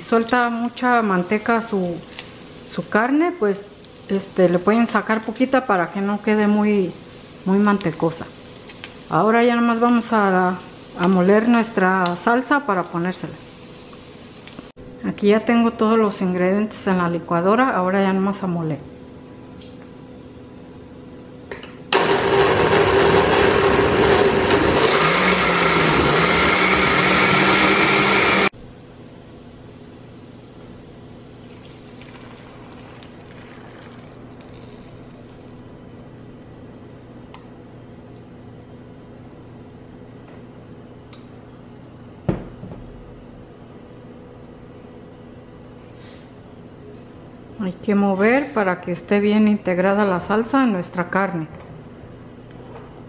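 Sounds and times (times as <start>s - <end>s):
blender grinding: 22.0s - 28.5s, 31.5s - 35.6s
steady low hum: 28.5s - 53.0s
sauce bubbling in a pan: 31.1s - 35.6s.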